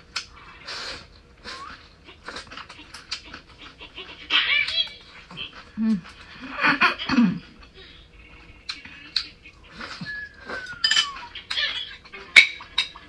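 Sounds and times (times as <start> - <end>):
wet chewing and smacking: 0.0 - 6.4, 7.0 - 13.0
thin falling whine: 7.1 - 13.0
mouth clicks: 8.6 - 12.2.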